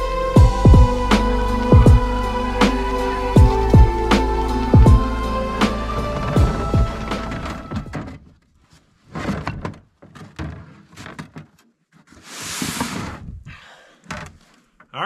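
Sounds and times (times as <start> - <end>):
rustling scraping rush: 12.0 - 13.4.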